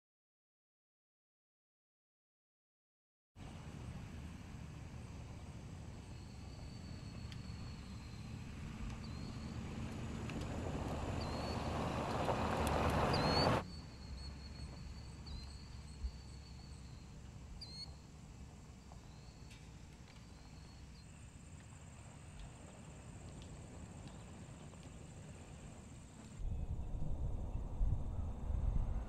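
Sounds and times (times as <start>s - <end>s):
pickup truck driving by: 3.4s - 29.0s
birds chirping: 5.3s - 18.1s, 18.7s - 26.3s.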